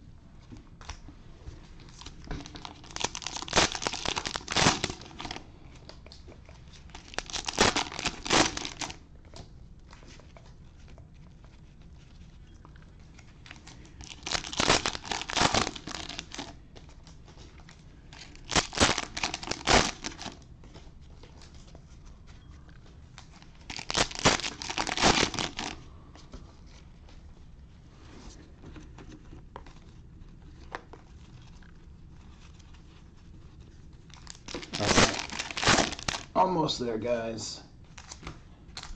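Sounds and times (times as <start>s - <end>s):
cellophane wrappers crinkling and tearing: 1.8s - 9.1s, 9.9s - 20.5s, 23.1s - 25.9s, 29.6s - 36.5s, 37.9s - 38.9s.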